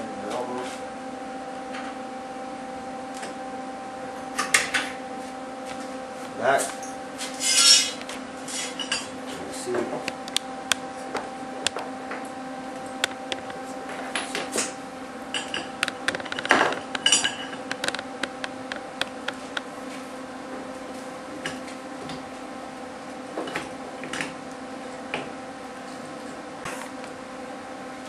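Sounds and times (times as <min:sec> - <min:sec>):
steady low hum: 0:00.0 - 0:28.0
steel rods clinking on workbench: 0:07.4 - 0:08.0.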